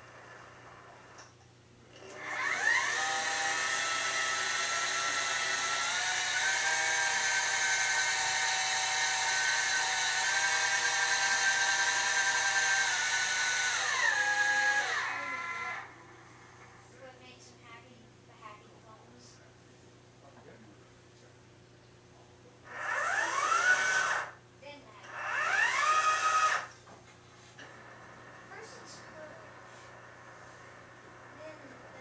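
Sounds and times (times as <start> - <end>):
drive motors whining: 2.0 - 16.9, 22.6 - 24.4, 25.0 - 26.8, 27.5 - 32.0.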